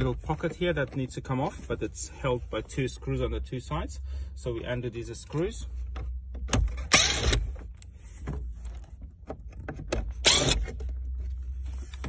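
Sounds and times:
cordless drill whirring: 6.9 - 7.4, 10.2 - 10.6.

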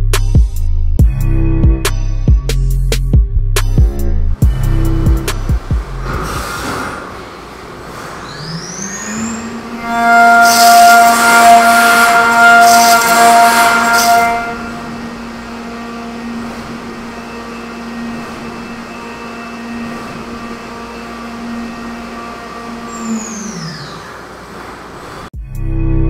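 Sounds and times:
hiss of metal cutting: 6.0 - 9.8
milling machine spindle whine: 6.0 - 25.3.

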